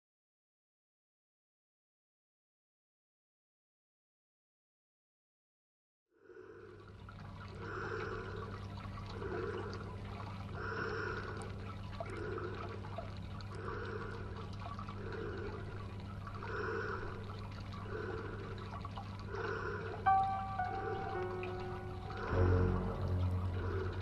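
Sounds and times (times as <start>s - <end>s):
soft water gurgle: 6.3s - 24.0s
trickling water: 6.3s - 24.0s.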